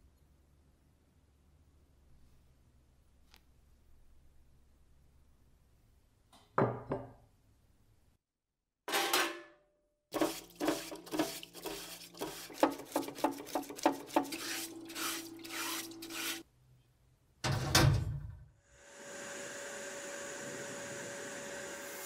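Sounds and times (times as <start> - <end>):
brush scrubbing metal: 10.1 - 16.4.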